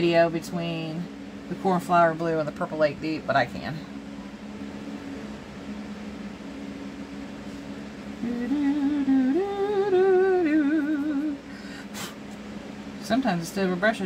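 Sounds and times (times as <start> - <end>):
low background hum: 0.0 - 14.0
woman humming a tune: 8.2 - 11.5.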